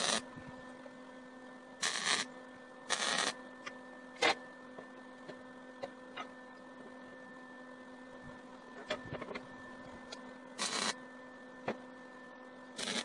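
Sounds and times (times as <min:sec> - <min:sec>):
arc welder sizzling bursts: 0:00.0 - 0:00.3, 0:01.8 - 0:03.4, 0:10.6 - 0:11.0, 0:12.7 - 0:13.0
steady hum: 0:00.0 - 0:13.0.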